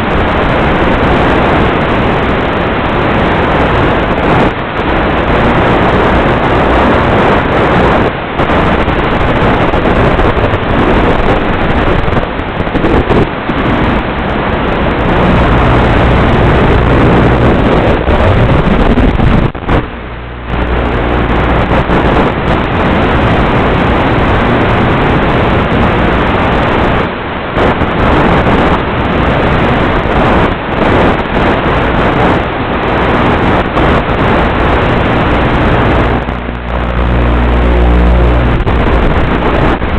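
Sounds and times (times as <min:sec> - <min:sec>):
wind over airframe: 0:00.0 - 0:39.9
electric motor whine: 0:14.8 - 0:24.6, 0:34.4 - 0:39.9.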